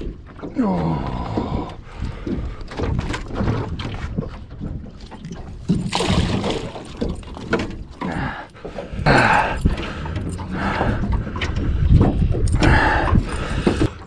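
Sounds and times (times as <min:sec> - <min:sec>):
fish thrashing and splashing: 0:01.2 - 0:11.7
knocks in aluminium boat: 0:01.3 - 0:08.0.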